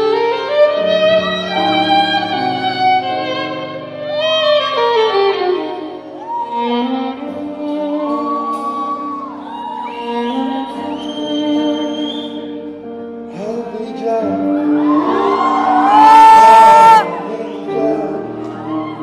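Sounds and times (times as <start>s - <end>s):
live band accompaniment: 0.0s - 19.0s
person singing: 13.2s - 19.0s.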